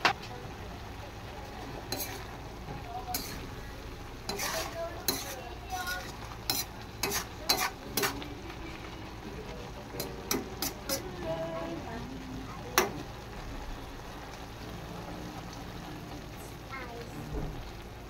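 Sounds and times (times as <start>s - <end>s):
faint low sizzle: 0.0s - 18.0s
metal spoon scraping a pan: 1.8s - 2.4s, 3.0s - 3.6s, 4.2s - 9.0s, 9.9s - 11.2s.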